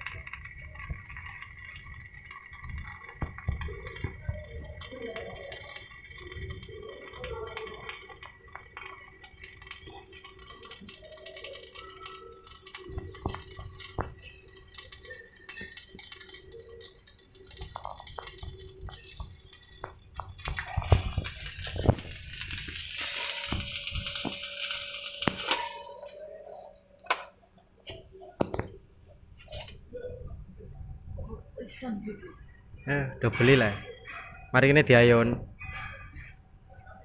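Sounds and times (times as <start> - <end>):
welding arc crackling: 0.0 - 28.8.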